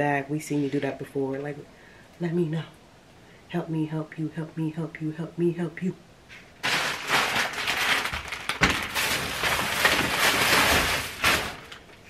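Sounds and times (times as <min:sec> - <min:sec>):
rustling and crackling handling noise: 0:06.3 - 0:12.0
sharp crack: 0:06.6 - 0:12.0.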